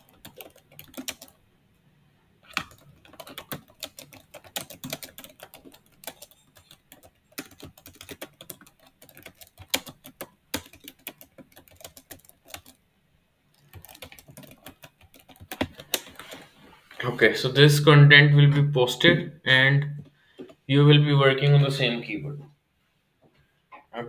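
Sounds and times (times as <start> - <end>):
keyboard typing clicks: 0.0 - 1.3, 2.5 - 12.8, 13.6 - 16.3.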